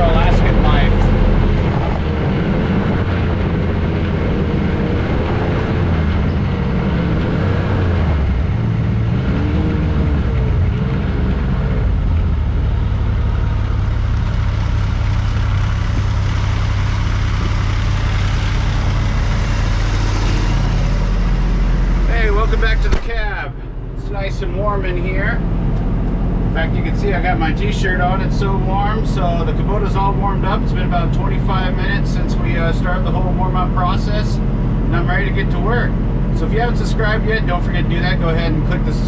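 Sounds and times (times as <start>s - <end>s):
snowmobile engine running: 0.0s - 39.0s.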